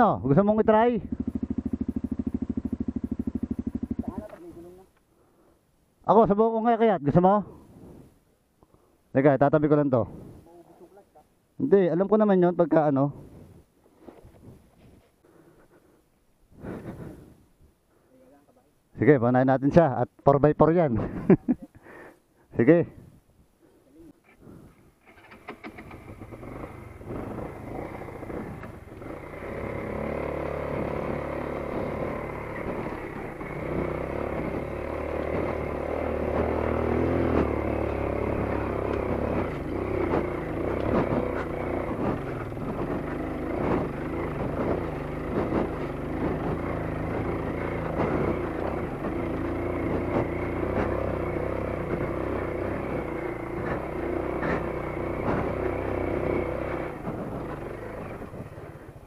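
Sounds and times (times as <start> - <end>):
motorcycle engine revving: 0.0 - 4.8, 24.4 - 59.0.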